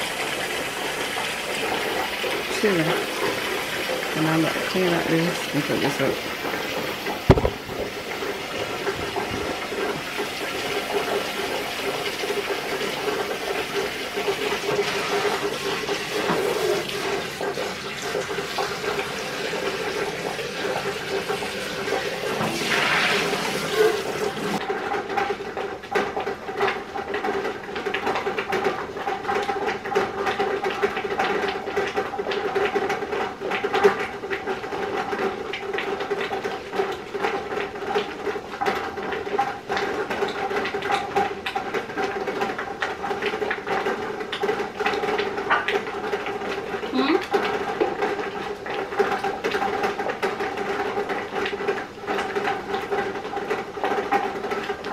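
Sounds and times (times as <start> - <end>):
faucet running into metal pot: 0.0 - 25.3
light clicks and knocks: 7.3 - 7.9.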